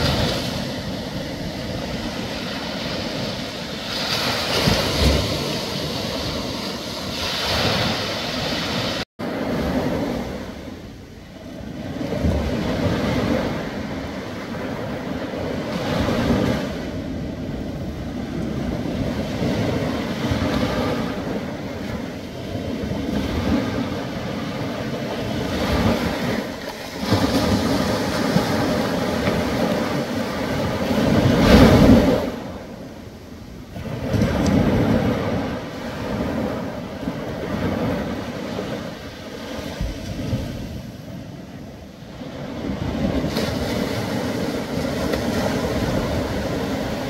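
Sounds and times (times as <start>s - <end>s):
ocean waves breaking on beach: 0.0s - 47.0s.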